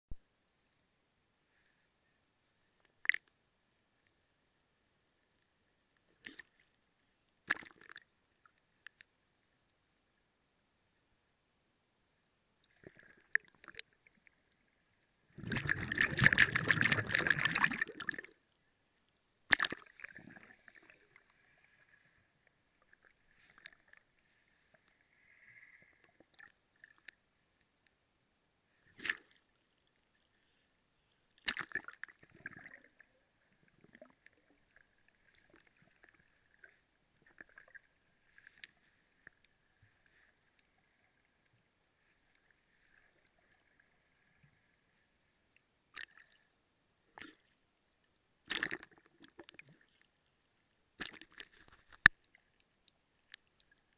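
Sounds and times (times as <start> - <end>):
underwater rush of water: 15.3 - 18.4.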